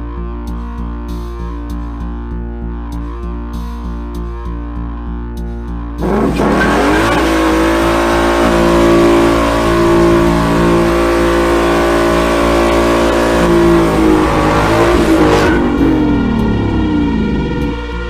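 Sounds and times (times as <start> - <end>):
music: 0.0 - 18.0
tyres squealing: 6.0 - 15.6
car engine revving: 6.0 - 18.0.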